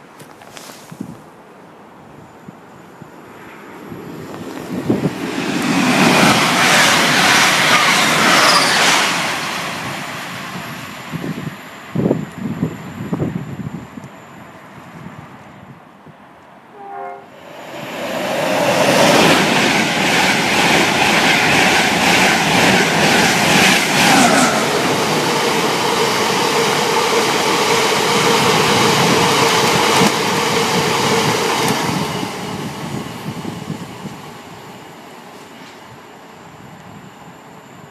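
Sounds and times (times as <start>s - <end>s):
train horn blast: 16.7s - 17.4s.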